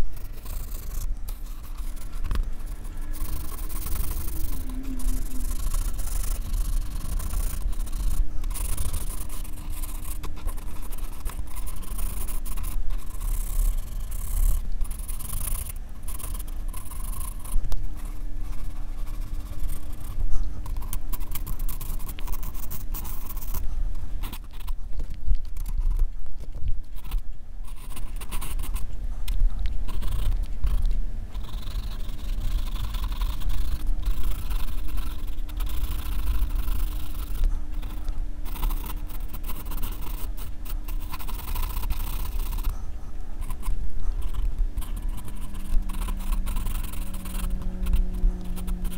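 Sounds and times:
pencil scratching on paper: 0:00.0 - 0:24.8, 0:27.0 - 0:28.9, 0:29.8 - 0:48.9
low rumble: 0:02.5 - 0:06.9.

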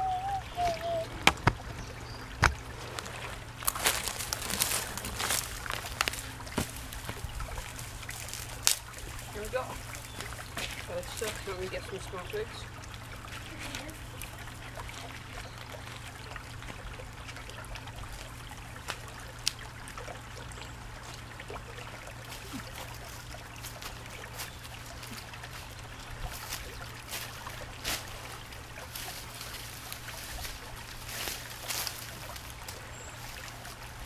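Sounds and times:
creek water trickling over stones: 0:00.0 - 0:34.0
dry grass crackling and rustling: 0:02.4 - 0:11.6, 0:22.4 - 0:33.8.

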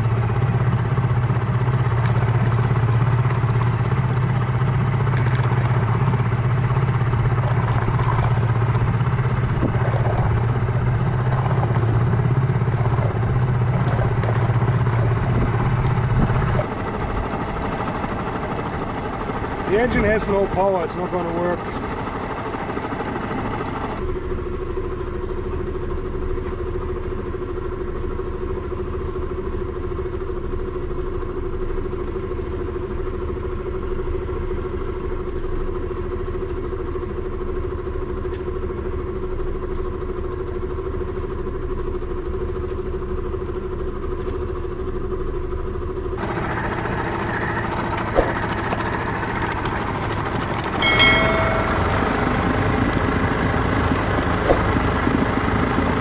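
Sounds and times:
outboard motor droning: 0:00.0 - 0:56.0
short ringing chime: 0:50.7 - 0:52.8.

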